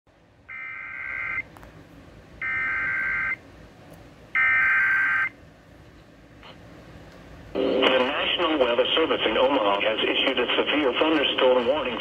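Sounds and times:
warbling data tones over radio: 2.4 - 3.4.

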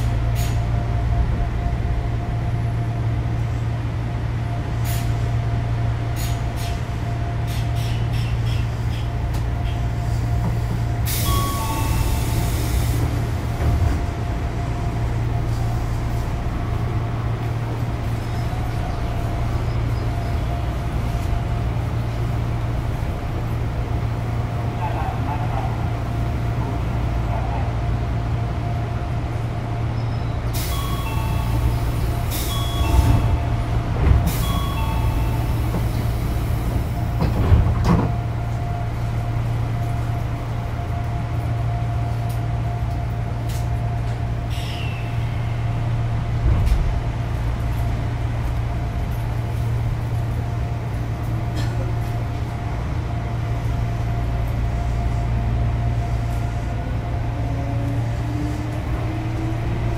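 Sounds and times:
train equipment humming: 0.0 - 59.9
rising train motor tone: 11.0 - 48.8
train doors closing thump: 32.4 - 38.4, 46.4 - 47.1
two-tone door chime: 34.4 - 35.5.

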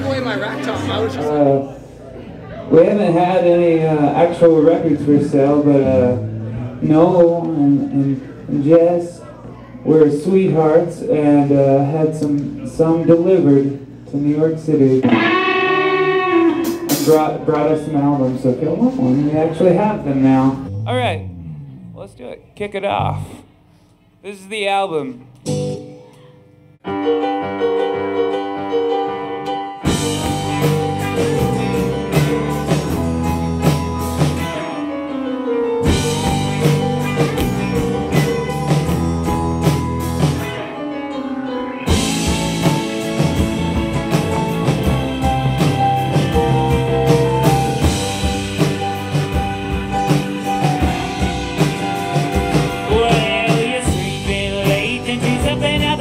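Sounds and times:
rock song with guitar and drums: 15.0 - 17.4, 27.9 - 56.0.

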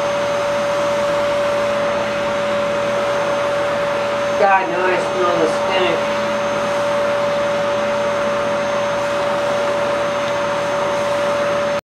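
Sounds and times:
vacuum cleaner whining: 0.0 - 11.8.

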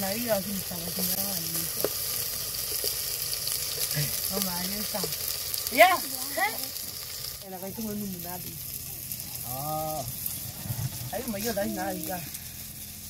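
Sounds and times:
food sizzling over fire: 0.0 - 13.0
person calling out: 11.4 - 12.3.

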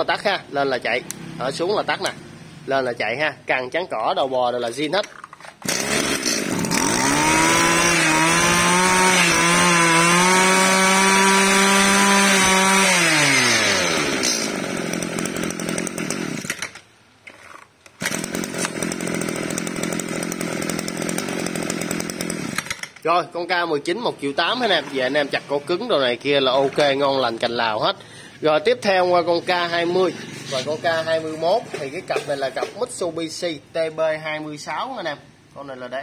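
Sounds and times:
brush cutter engine revving and idling: 5.6 - 16.8, 18.0 - 22.9.

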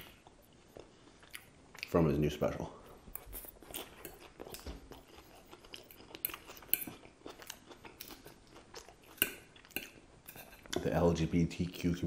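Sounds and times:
chewing and crunching lettuce: 3.1 - 10.8
fork clinking and scraping on plate: 9.2 - 10.9.

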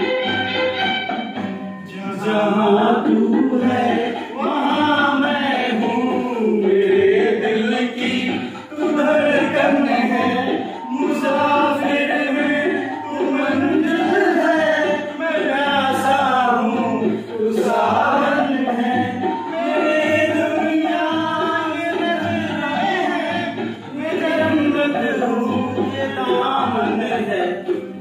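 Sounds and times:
men singing into microphones: 1.8 - 28.0.

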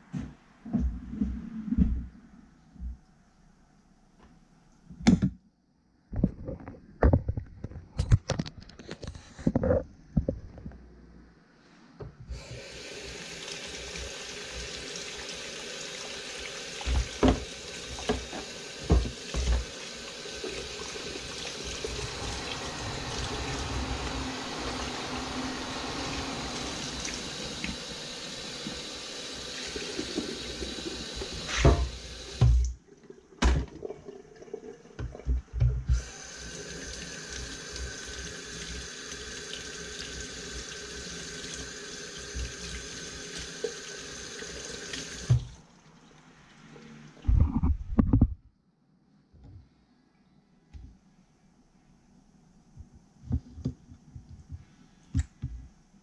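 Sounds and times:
tap running into sink: 16.8 - 19.8, 29.6 - 32.7.

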